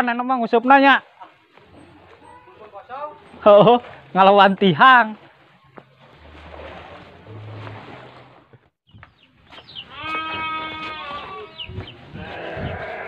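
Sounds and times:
farm animal bleating: 9.8s - 13.0s.

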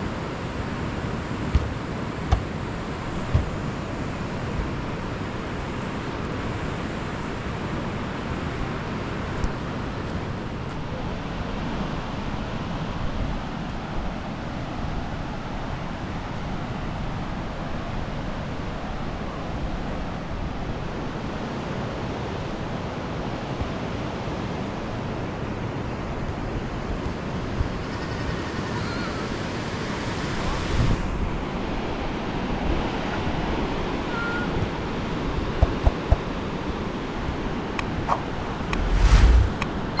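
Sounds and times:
rushing outdoor noise: 37.8s - 40.0s.

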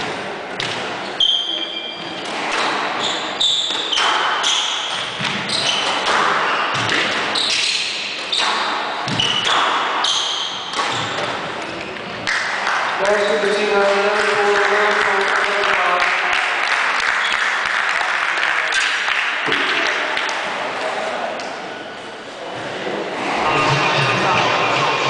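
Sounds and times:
shoes squeaking on wooden floor: 3.0s - 12.1s.

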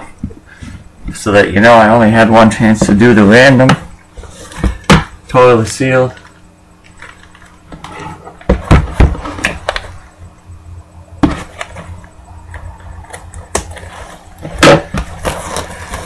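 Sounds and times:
sharp knocks of box handling: 4.6s - 5.2s, 11.2s - 11.9s.

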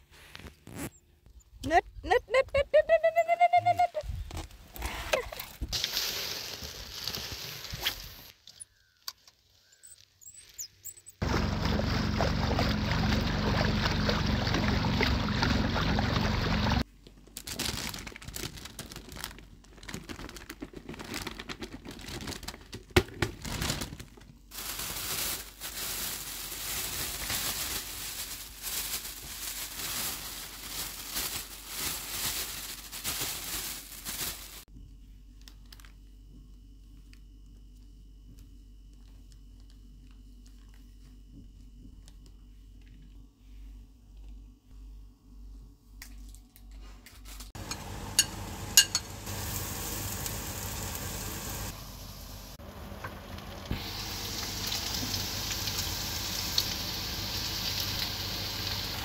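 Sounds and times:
plastic bag crinkling: 5.2s - 8.3s, 17.2s - 34.7s.

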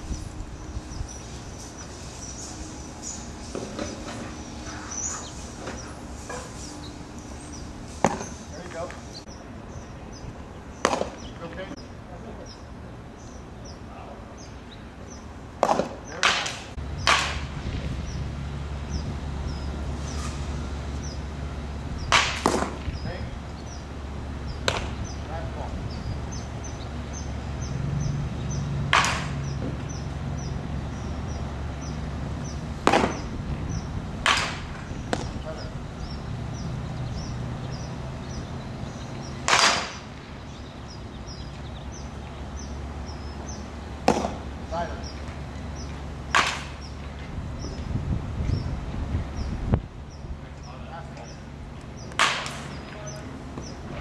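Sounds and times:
low hum: 0.0s - 15.6s
baseball popping into catcher's mitt: 10.8s - 11.2s, 15.6s - 17.5s, 24.6s - 25.0s, 32.8s - 33.3s, 34.2s - 35.4s, 44.0s - 44.4s
sharp knocks: 22.1s - 22.9s, 24.6s - 25.0s, 28.9s - 29.9s, 32.8s - 33.4s, 34.2s - 35.4s, 44.0s - 44.4s.

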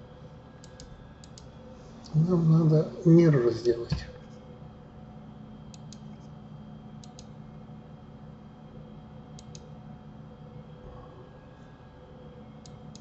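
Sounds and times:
steady low hum: 0.0s - 13.0s
computer mouse clicking: 0.6s - 1.5s, 5.7s - 6.3s, 7.0s - 7.4s, 9.3s - 9.7s, 12.6s - 13.0s.

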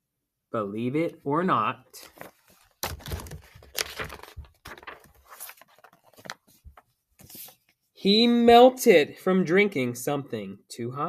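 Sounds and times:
book pages rustling: 2.0s - 7.9s.

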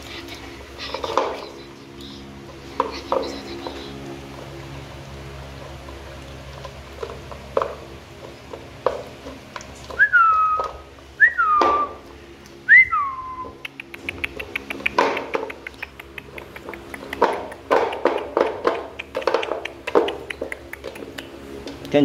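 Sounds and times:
puppy crunching kibble: 0.0s - 22.0s
whistled notes: 10.0s - 12.0s, 12.7s - 13.7s
kibble clicking against plastic bowl: 13.6s - 22.0s.

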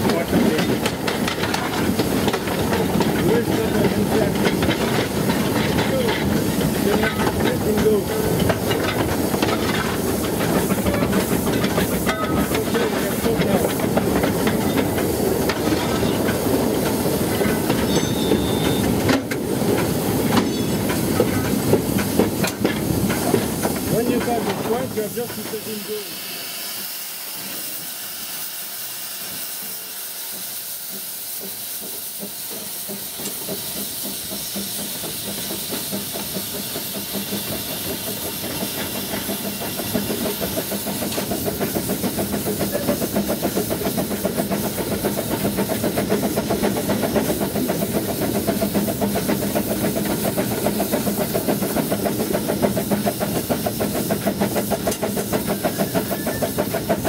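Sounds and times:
steam hissing: 0.0s - 57.0s
steam engine rhythmic beat: 30.2s - 57.0s.

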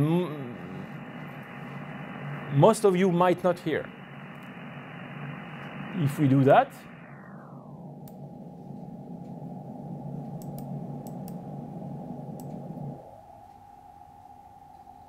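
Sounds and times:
faint steady tone: 0.0s - 15.0s
radio receiver hiss: 0.0s - 15.0s
light clicks: 10.3s - 11.4s.

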